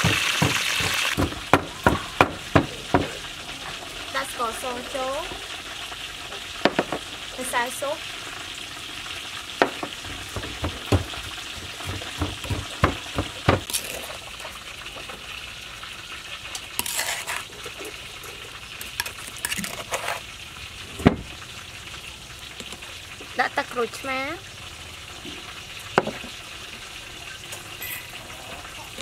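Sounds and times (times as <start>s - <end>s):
utensils knocking on mortar: 0.0s - 3.2s, 9.6s - 14.2s.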